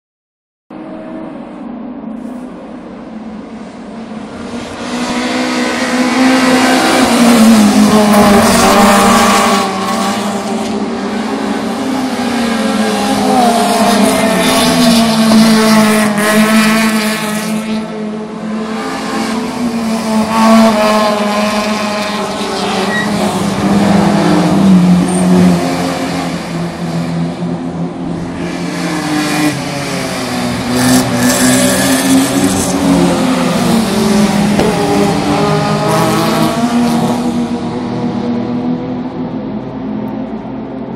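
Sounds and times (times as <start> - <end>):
race cars passing at speed: 0.7 - 40.9
engines revving through gears: 28.1 - 37.9.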